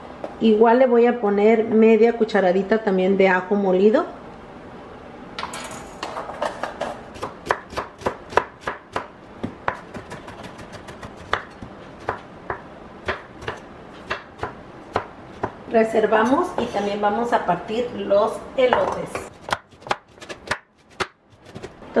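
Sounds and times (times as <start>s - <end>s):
knife chopping on wooden board: 7.2s - 15.6s, 18.8s - 21.8s.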